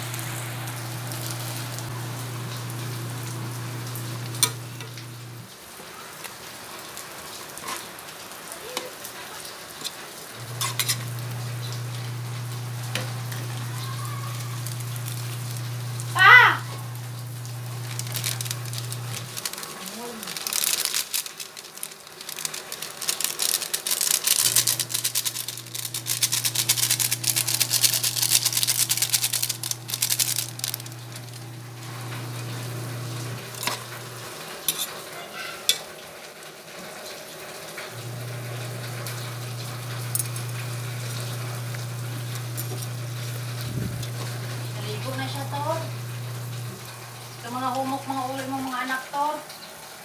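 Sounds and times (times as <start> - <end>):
soup boiling and bubbling: 0.0 - 5.6, 10.2 - 34.6, 37.9 - 47.5.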